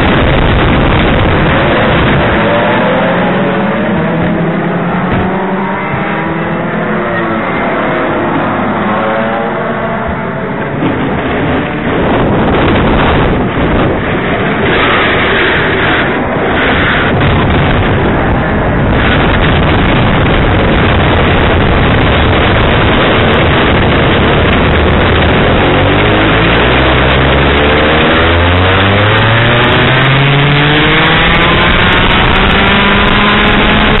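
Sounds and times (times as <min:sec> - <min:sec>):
go-kart engine accelerating: 0:00.0 - 0:34.0
wind rush on microphone: 0:00.0 - 0:34.0.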